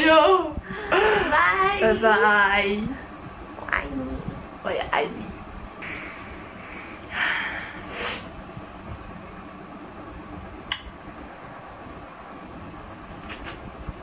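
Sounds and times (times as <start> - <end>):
person breathing out: 5.8 - 8.3.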